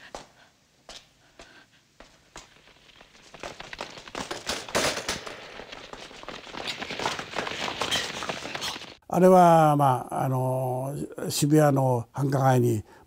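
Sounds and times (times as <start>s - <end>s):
rapid clatter of sharp cracks: 2.4s - 9.0s.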